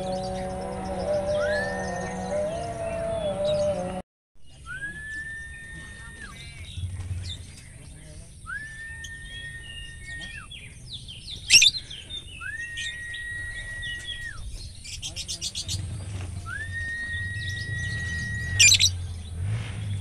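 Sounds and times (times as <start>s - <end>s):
long whistled notes: 0.0s - 4.0s, 4.6s - 6.6s, 8.5s - 10.4s, 12.4s - 14.4s, 16.5s - 18.9s
songbirds chirping: 0.0s - 20.0s.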